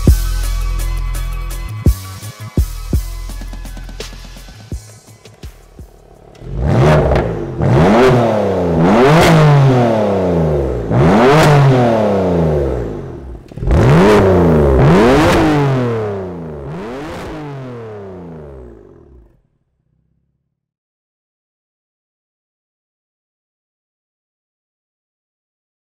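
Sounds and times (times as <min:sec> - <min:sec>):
car engine revving: 0:00.0 - 0:20.7.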